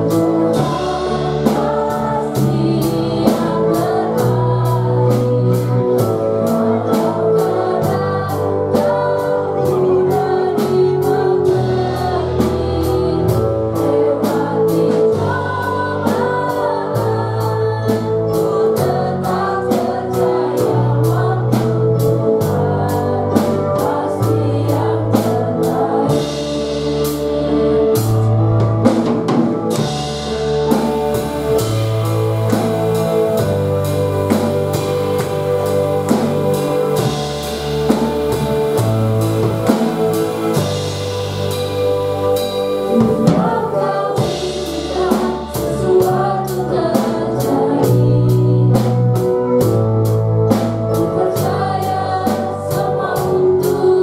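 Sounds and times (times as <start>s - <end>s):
woman singing lead: 0.0s - 28.4s, 30.7s - 49.7s, 50.4s - 54.0s
drum kit: 0.0s - 54.0s
electric bass: 0.0s - 54.0s
keyboard playing: 0.0s - 54.0s
cymbal beat: 29.8s - 46.2s.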